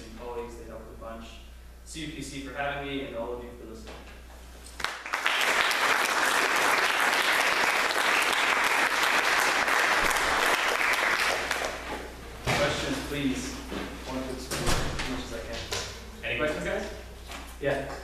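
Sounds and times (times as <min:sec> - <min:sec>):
audience applause: 0:04.8 - 0:11.8.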